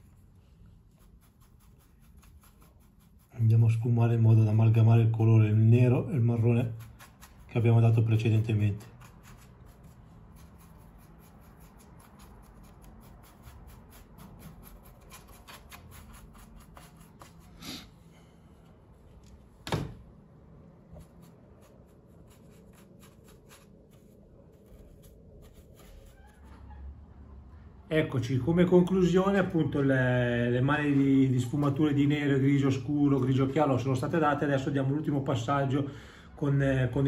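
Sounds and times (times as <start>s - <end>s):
paintbrush dabbing and scratching: 0.0s - 17.8s, 20.8s - 26.8s.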